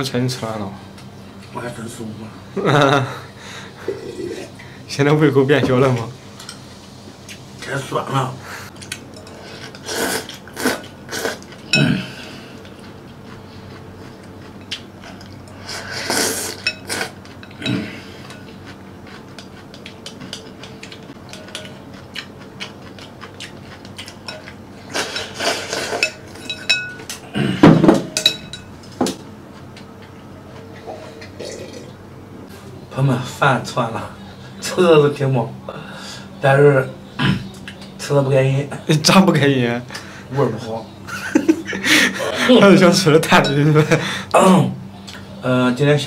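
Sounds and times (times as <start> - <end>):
chopsticks clinking on porcelain bowl: 16.5 - 18.5, 19.1 - 27.2, 28.1 - 29.2, 43.3 - 43.8.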